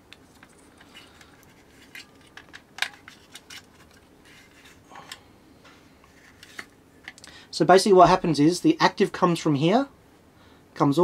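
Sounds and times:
plastic and metal clicks and scrapes: 0.1s - 5.2s.

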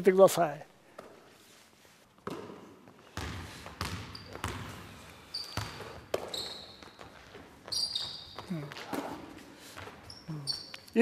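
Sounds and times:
basketball bouncing on wooden floor: 2.2s - 9.2s
sneaker squeak: 3.2s - 11.0s.

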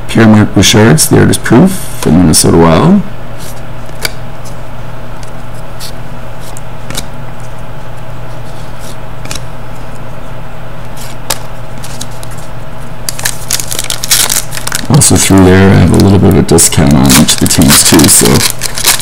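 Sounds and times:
low steady hum: 0.0s - 19.0s
cards clicking and scraping: 8.8s - 9.4s, 10.9s - 12.5s, 13.1s - 14.8s, 16.8s - 19.0s.

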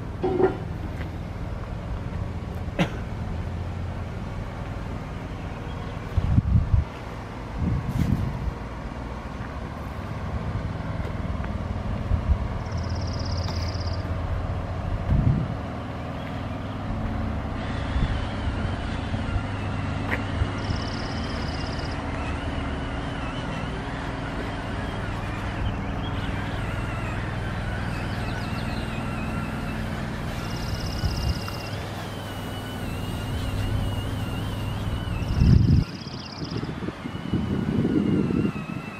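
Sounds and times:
engine running: 0.0s - 38.9s
wind thumps on microphone: 7.6s - 8.6s, 15.0s - 15.6s.

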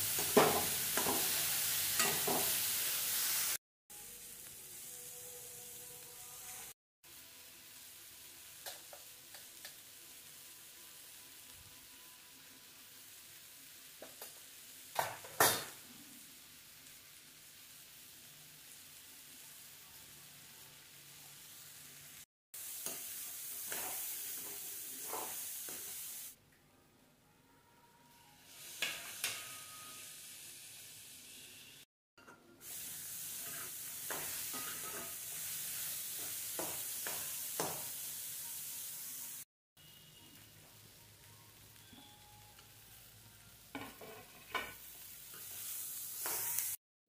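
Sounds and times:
chickpeas sizzling in a pan: 0.0s - 26.4s, 28.4s - 31.9s, 32.6s - 46.8s
steel spoon scraping a pan: 0.4s - 2.7s, 22.8s - 26.0s, 28.5s - 30.3s, 32.2s - 37.8s, 43.7s - 46.8s
spatula scraping a metal pan: 33.4s - 35.2s, 43.8s - 45.5s.

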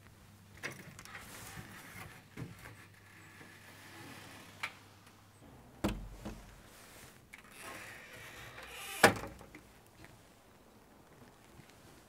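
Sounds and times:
rustling: 0.7s - 5.2s
wooden door shutting with thud: 5.8s - 6.6s, 9.0s - 9.4s.

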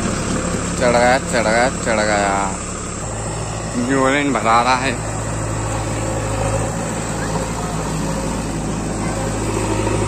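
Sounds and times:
tractor diesel engine idling: 0.0s - 10.0s.

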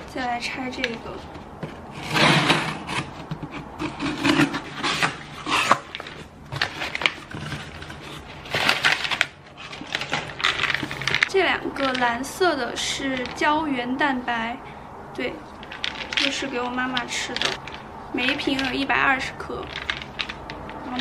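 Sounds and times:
packing paper rustling: 0.8s - 12.1s, 15.6s - 21.0s.

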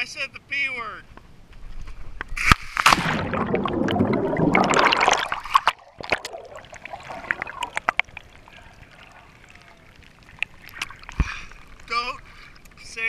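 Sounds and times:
sharp splash into water: 2.4s - 8.4s
churning and bubbling water: 2.8s - 13.0s.

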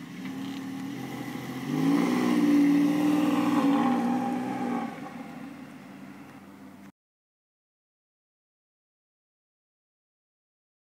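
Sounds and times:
sports car engine revving: 0.0s - 6.6s.

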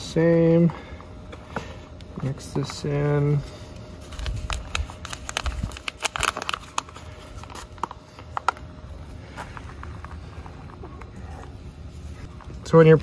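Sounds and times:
soil and pot crackling: 3.4s - 13.0s.

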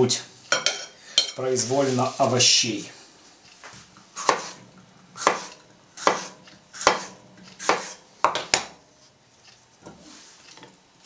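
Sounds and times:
knife slicing pepper: 4.2s - 4.6s, 5.2s - 8.0s.

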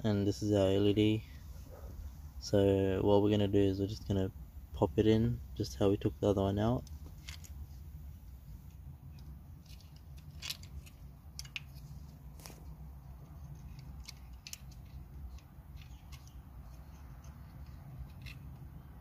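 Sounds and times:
low steady hum: 0.0s - 19.0s
small clicks and scrapes of bulb: 6.8s - 18.8s.

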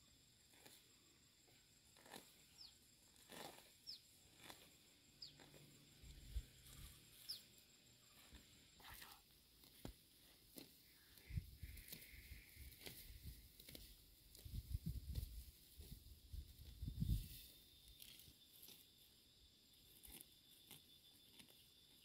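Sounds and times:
grass rustling and snapping: 1.9s - 2.4s, 3.1s - 4.7s, 9.0s - 18.8s, 19.9s - 22.0s
bird chirping: 2.5s - 2.8s, 3.8s - 4.1s, 5.2s - 5.6s, 6.3s - 8.2s.

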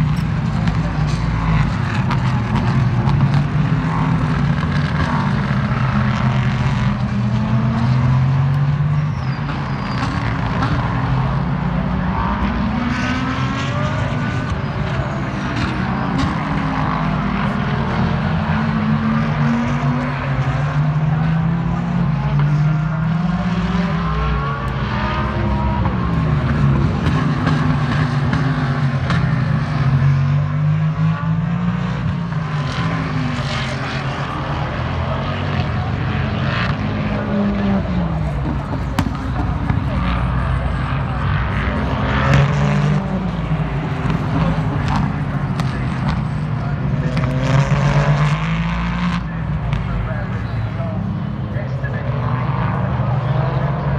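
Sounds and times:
race car engines: 0.0s - 53.9s.

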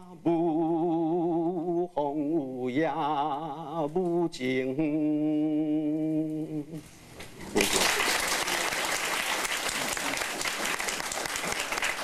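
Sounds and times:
audience clapping: 7.5s - 12.0s.

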